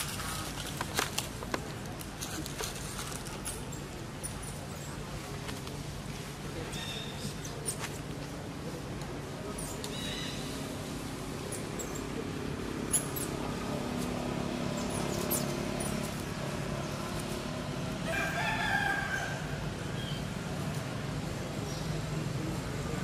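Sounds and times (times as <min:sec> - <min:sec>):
distant rooster crowing: 0:18.0 - 0:19.7.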